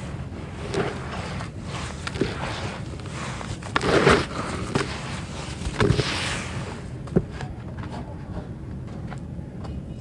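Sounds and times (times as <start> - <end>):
dirt crunching into plastic basin: 0.6 - 6.2.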